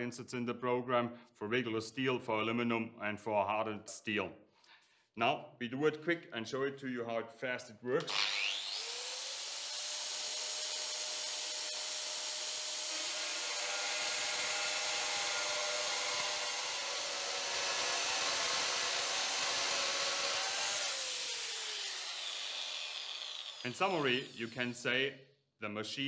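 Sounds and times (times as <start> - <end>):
cutter milling metal hissing: 21.2 - 24.8.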